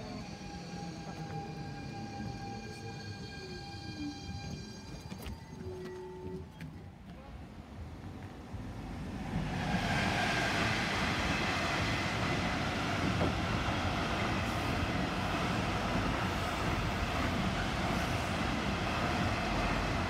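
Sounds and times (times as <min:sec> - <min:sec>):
train wheels rumbling on rails: 0:08.0 - 0:20.0.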